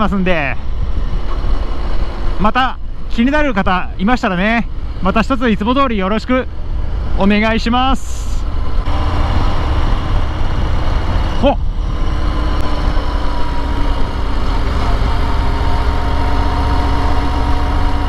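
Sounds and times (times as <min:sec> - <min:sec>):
motorcycle engine rumble: 0:00.0 - 0:18.0
wind rushing: 0:06.5 - 0:18.0.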